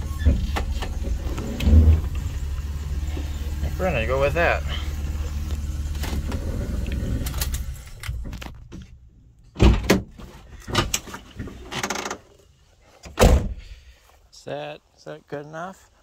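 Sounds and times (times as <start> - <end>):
minivan engine idling: 0.0 - 9.1
door slamming: 9.6 - 10.9, 13.2 - 13.6
car door clunks: 13.1 - 13.6.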